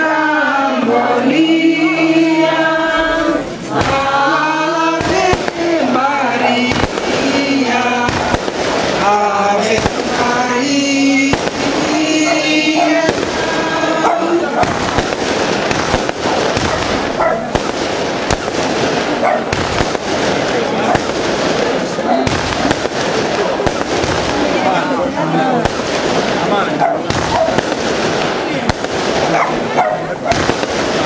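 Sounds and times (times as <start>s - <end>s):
voices singing slow chant: 0.0s - 17.6s
fireworks bangs: 0.0s - 31.0s.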